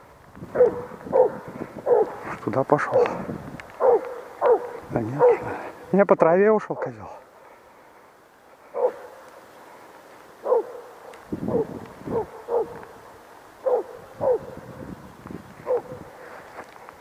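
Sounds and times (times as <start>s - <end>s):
hound baying: 0.5s - 3.2s, 3.8s - 5.7s, 8.7s - 9.2s, 10.4s - 13.0s, 13.6s - 14.8s, 15.6s - 16.2s.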